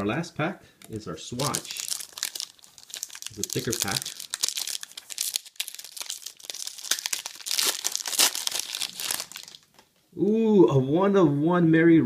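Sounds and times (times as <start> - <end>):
foil pack tearing and crinkling: 1.4 - 9.7.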